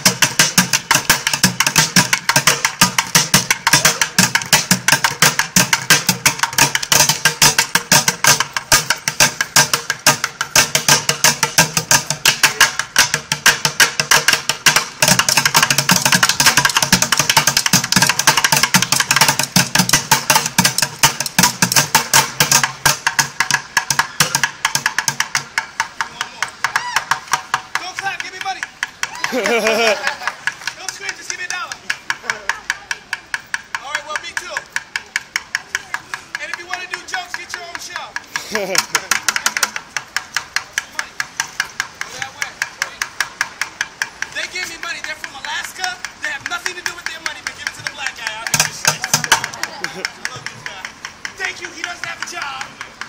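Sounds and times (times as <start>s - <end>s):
drumsticks beating plastic buckets: 0.0s - 53.0s.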